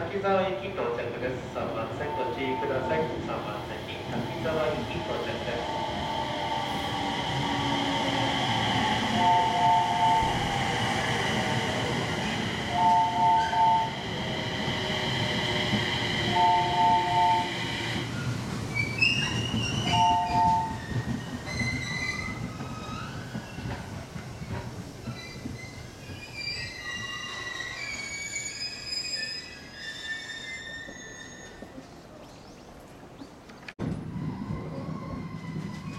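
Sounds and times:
electric train high whine: 1.5 - 18.7
wheels and brakes squealing: 17.4 - 31.9, 34.0 - 35.9.

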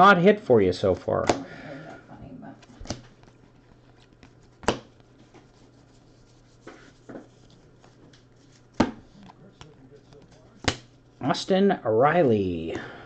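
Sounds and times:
cards rubbing and ticking: 2.6 - 11.2
card snaps: 10.6 - 10.9.

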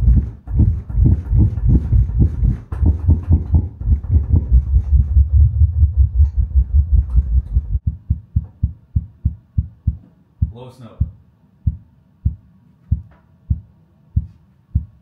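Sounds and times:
pulsing synthesizer bass: 0.0 - 8.2.

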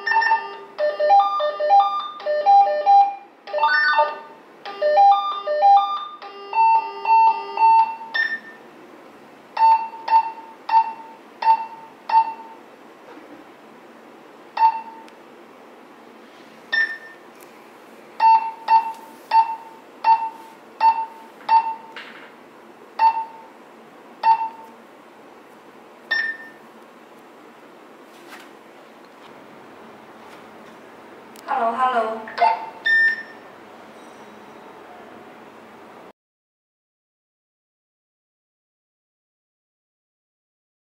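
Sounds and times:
short key beeps: 0.0 - 0.6, 5.1 - 8.6, 14.6 - 15.1, 16.7 - 17.2, 18.2 - 21.9, 23.0 - 23.4, 24.2 - 24.7, 26.1 - 26.6, 32.8 - 33.4
electronic call-tone melodies: 0.0 - 8.5.

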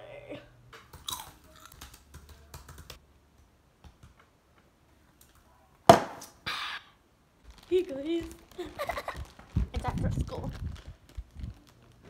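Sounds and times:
crunching chips: 0.9 - 2.0, 7.4 - 12.0
foil snack bag crinkling: 7.4 - 12.0.

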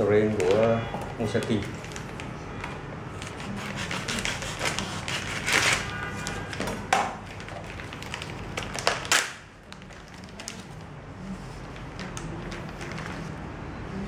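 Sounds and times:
plastic bag crinkling: 0.0 - 2.4, 7.2 - 13.4.

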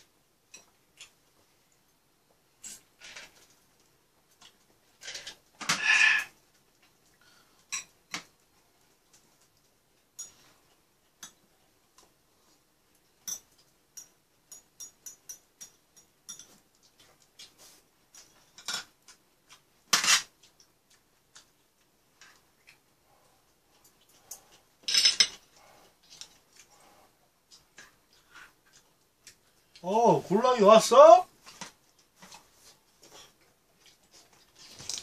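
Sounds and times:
dishes clattering: 24.8 - 25.4.

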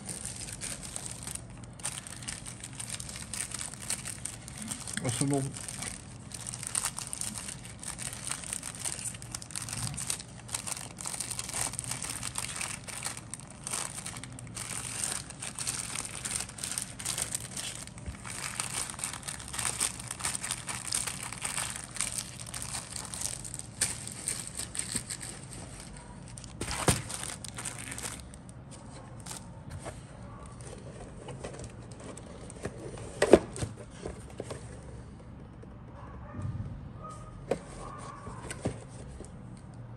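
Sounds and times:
plastic bag crinkling: 0.0 - 29.5.

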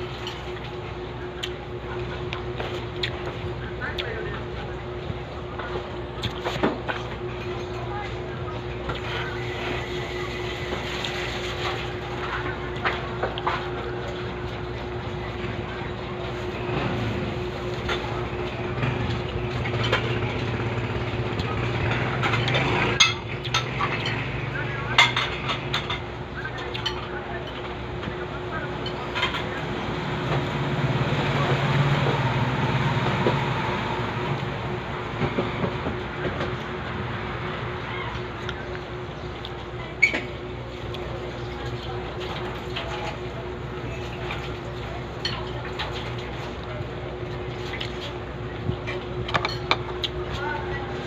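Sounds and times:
steady background hum: 0.0 - 51.0
vehicle engine hum passing: 15.7 - 24.9, 29.4 - 38.9.

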